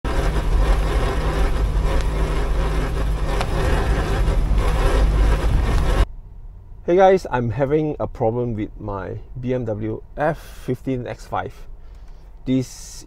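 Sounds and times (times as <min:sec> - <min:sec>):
tyre road noise on asphalt: 0:00.0 - 0:07.3.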